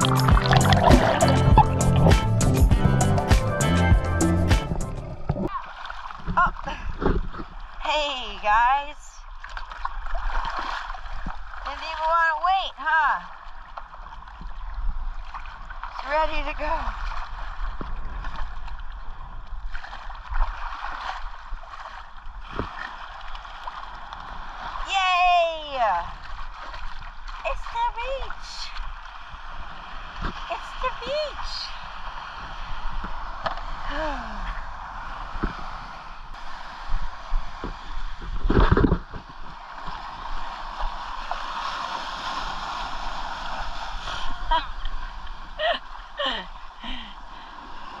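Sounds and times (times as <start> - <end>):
seawater sloshing and splashing: 0.0 - 2.4, 4.9 - 7.9, 9.2 - 12.1, 13.2 - 24.9, 26.0 - 33.9, 34.5 - 48.0
small waves washing in: 9.2 - 12.3, 13.1 - 48.0
wind rumble on microphone: 29.4 - 48.0
wind buffeting microphone: 33.8 - 41.0.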